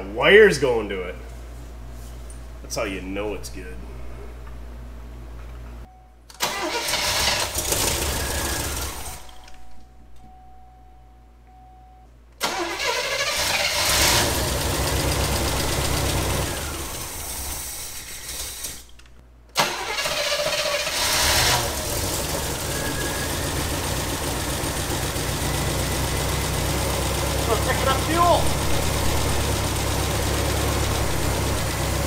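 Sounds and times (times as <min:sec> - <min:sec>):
car engine starting and running: 0:06.4 - 0:09.6, 0:12.4 - 0:32.0.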